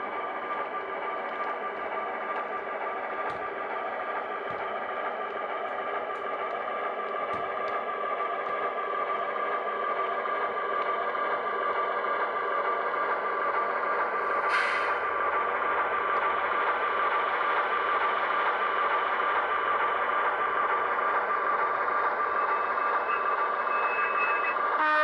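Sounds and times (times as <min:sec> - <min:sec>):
short hiss: 0:14.5 - 0:15.0.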